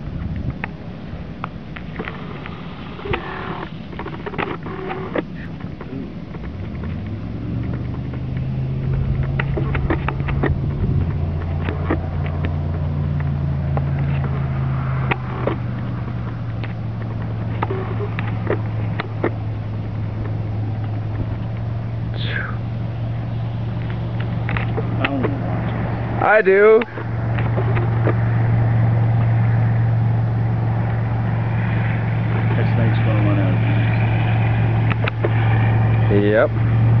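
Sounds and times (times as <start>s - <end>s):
motor humming: 0.0s - 37.0s
sharp clicks and scuffs: 4.0s - 21.7s.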